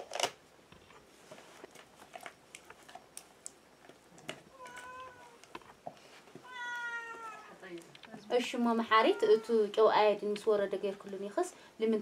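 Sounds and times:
cat meowing: 0:04.5 - 0:05.5, 0:06.4 - 0:07.6, 0:08.9 - 0:09.6.

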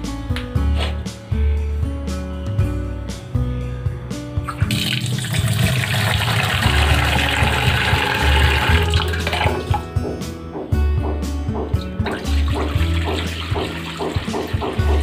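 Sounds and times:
background music with bass: 0:00.0 - 0:15.0
tap water running into steel bowl: 0:04.5 - 0:09.8, 0:12.1 - 0:15.0.

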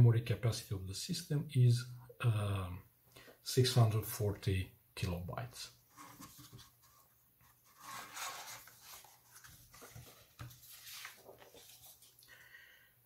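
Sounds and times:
paper rustling and sliding: 0:05.8 - 0:12.2.

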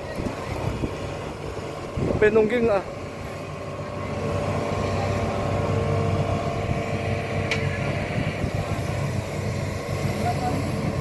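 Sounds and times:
excavator diesel engine under load: 0:00.0 - 0:11.0
hydraulic whine: 0:02.9 - 0:11.0.

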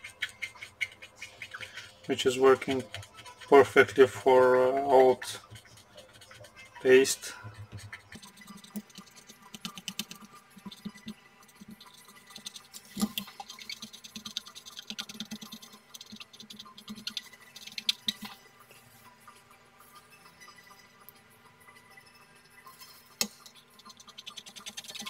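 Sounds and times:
thermal paste scraping: 0:00.0 - 0:09.6.

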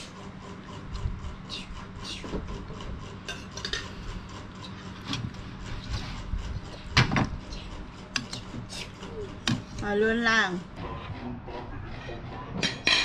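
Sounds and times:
utensils clinking on plates: 0:03.2 - 0:04.0, 0:12.0 - 0:13.0.

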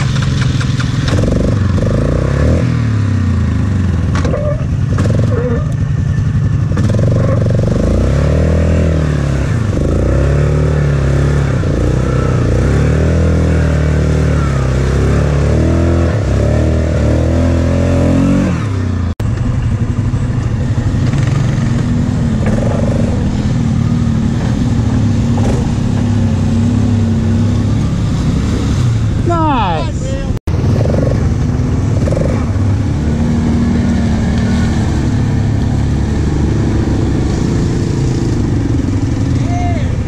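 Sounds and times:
quad bike engine revving: 0:00.0 - 0:40.0
steady engine sound: 0:00.0 - 0:40.0.

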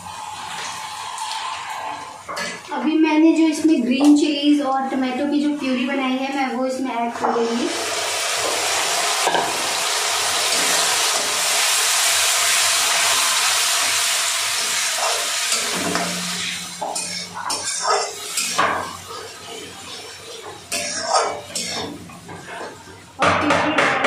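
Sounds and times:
puree sizzling in hot oil: 0:00.0 - 0:02.7, 0:07.2 - 0:23.2
metal spatula scraping pan: 0:14.5 - 0:22.9.

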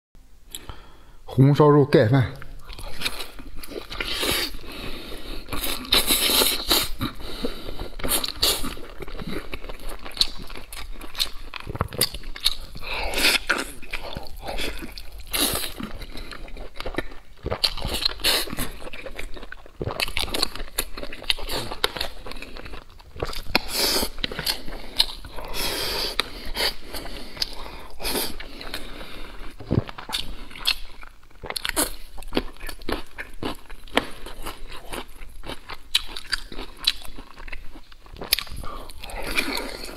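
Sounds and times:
man chewing food: 0:02.4 - 0:39.9.

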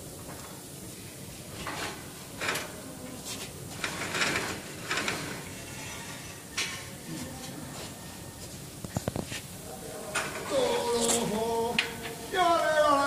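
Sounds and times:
wire rope scraping over pulley: 0:01.5 - 0:08.4.

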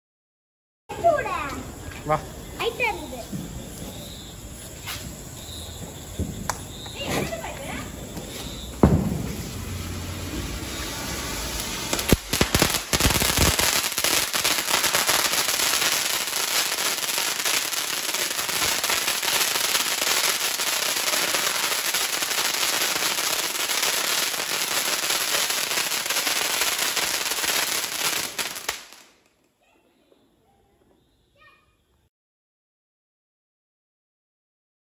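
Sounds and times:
fountain firework crackling: 0:01.0 - 0:29.2
firework pops: 0:03.2 - 0:30.2.

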